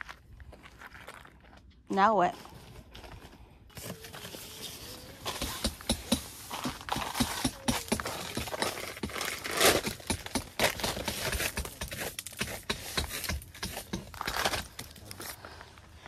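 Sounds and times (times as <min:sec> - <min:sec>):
hand brush sweeping tent floor: 0:03.8 - 0:09.8.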